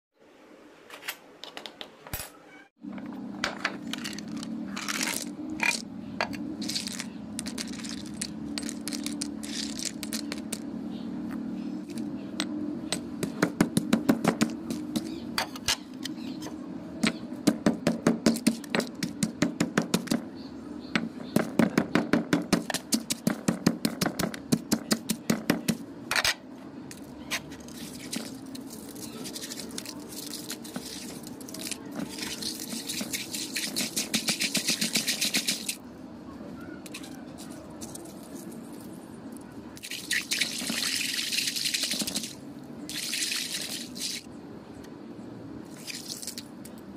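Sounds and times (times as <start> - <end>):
pestle pounding ice: 13.0 - 15.2, 17.4 - 20.2, 21.4 - 25.8, 28.1 - 35.8
ice slush squelching: 27.6 - 35.8.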